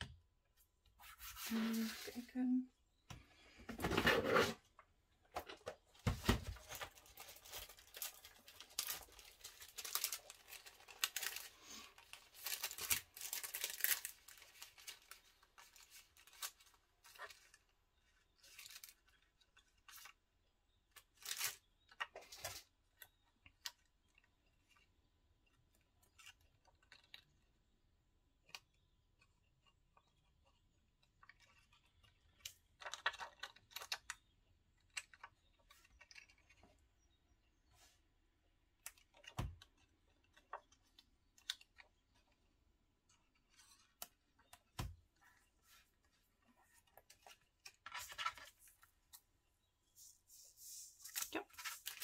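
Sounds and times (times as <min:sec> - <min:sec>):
paper card rustling: 0:01.0 - 0:02.3, 0:05.4 - 0:17.7, 0:44.7 - 0:49.3, 0:49.9 - 0:52.0.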